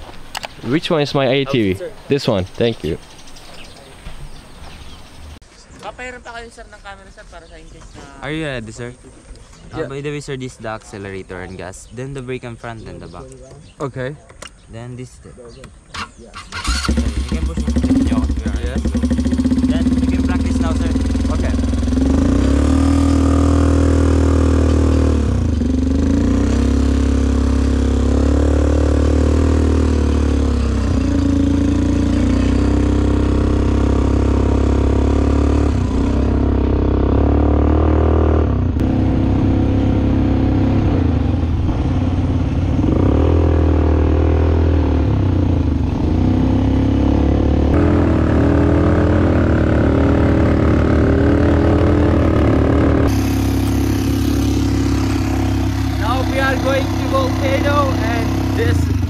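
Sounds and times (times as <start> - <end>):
atv engine revving: 15.9 - 59.0.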